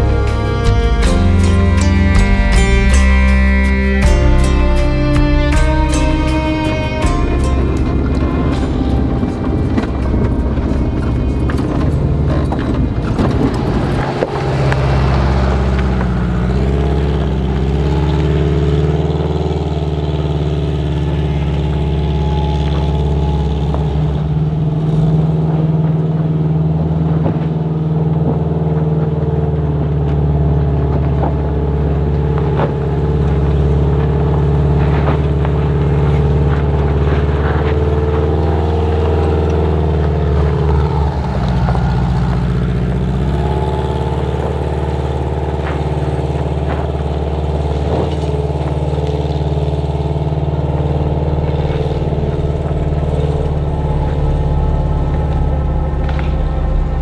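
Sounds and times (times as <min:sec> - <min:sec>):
van engine running: 0:00.0 - 0:57.0.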